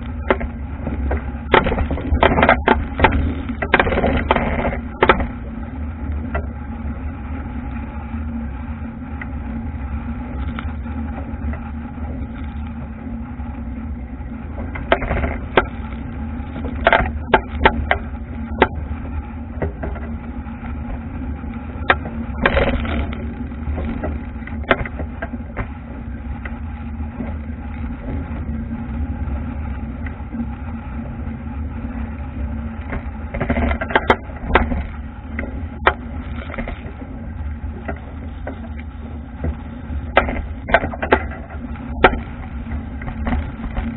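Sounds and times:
wind buffeting camera: 0.0 - 43.9
hull knocking on waves: 0.2 - 5.6, 16.6 - 21.0, 37.6 - 43.9.

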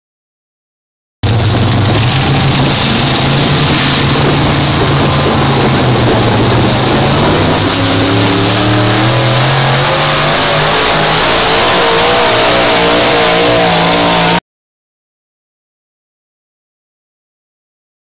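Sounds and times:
truck engine revving under load: 1.2 - 14.4.

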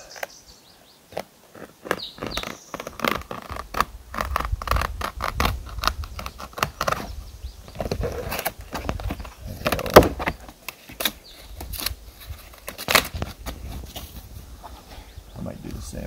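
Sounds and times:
knife cutting birch bark: 1.2 - 12.0.

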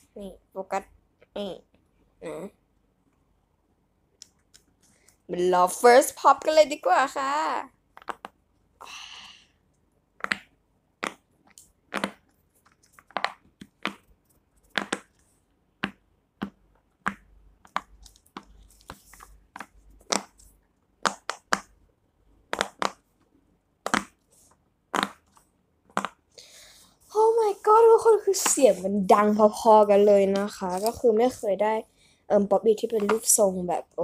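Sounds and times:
fidget toy bubbles popping: 22.5 - 23.0.

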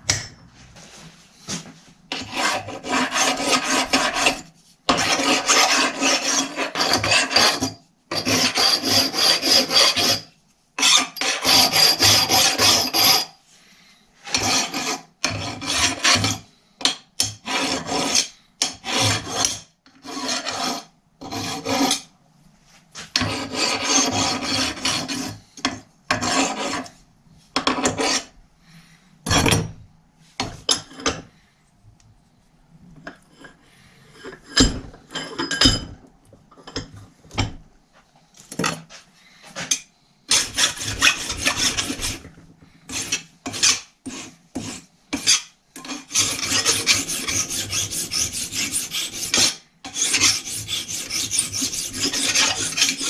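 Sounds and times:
hand file rasping on metal: 2.1 - 13.3, 14.2 - 16.4, 17.2 - 22.1, 23.2 - 26.9, 27.7 - 28.3, 39.6 - 42.3, 42.9 - 53.0.

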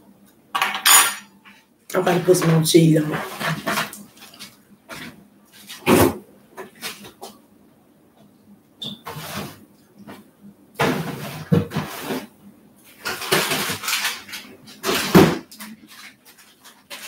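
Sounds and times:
dishes and cutlery clattering: 0.6 - 1.6.

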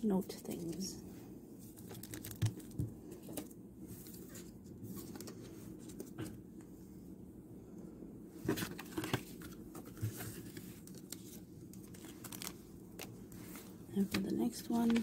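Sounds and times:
steady low hum: 0.0 - 15.0
paper and plastic rustling: 1.6 - 6.4, 8.4 - 15.0.

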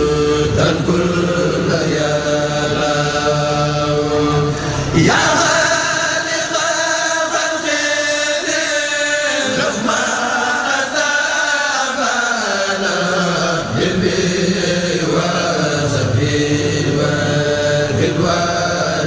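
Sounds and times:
voices chanting religious poem: 0.0 - 19.0.

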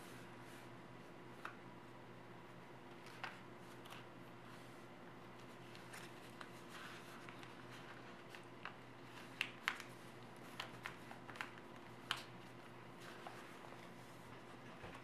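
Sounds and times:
faint steady hum: 0.0 - 15.0
paper being folded: 3.0 - 4.8, 5.4 - 15.0.

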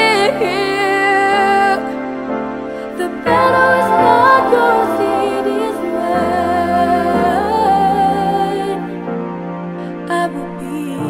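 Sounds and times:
soft sustained accompaniment: 0.0 - 11.0
wordless vocal note: 3.2 - 8.7.

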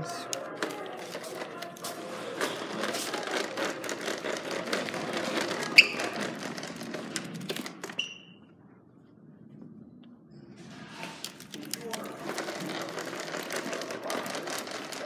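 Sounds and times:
vacuum cleaner wheels rattling: 0.2 - 8.3, 11.1 - 15.0
short squeaks: 5.6 - 6.4, 7.8 - 8.5.

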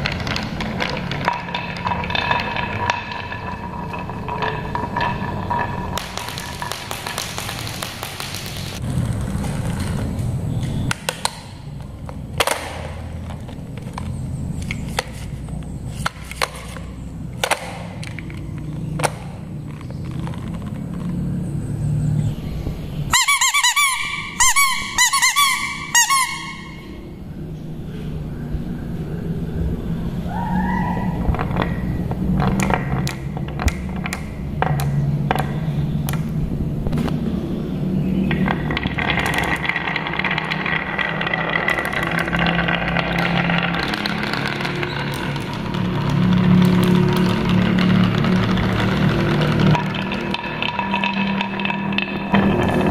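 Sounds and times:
marbles clicking on wooden track: 0.0 - 22.2, 23.2 - 27.1, 31.0 - 52.9
plastic toy car clicking on tile: 38.3 - 52.9.

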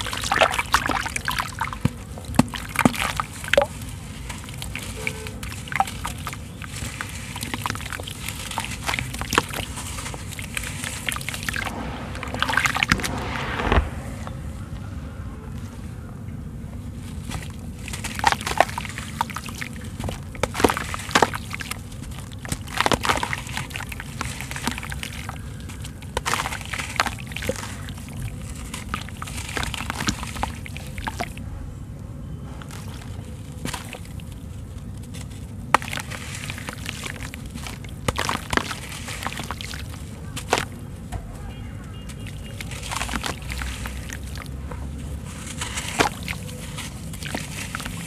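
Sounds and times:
water sloshing in a basin: 0.0 - 12.9, 17.1 - 31.4, 32.6 - 41.1, 42.0 - 48.0
small splashes: 32.7 - 40.8, 42.1 - 48.0
wet sand crunching: 32.7 - 40.8, 42.3 - 48.0.

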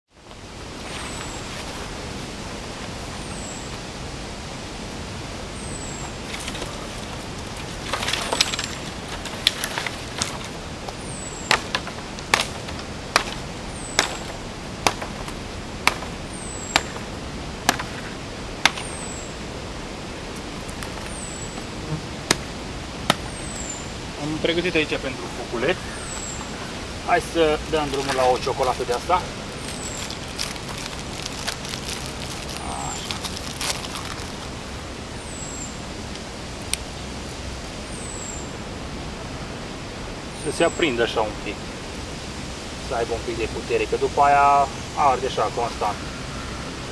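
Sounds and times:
outdoor hiss: 0.1 - 46.9
wood being chopped: 7.8 - 19.0, 22.2 - 23.4.

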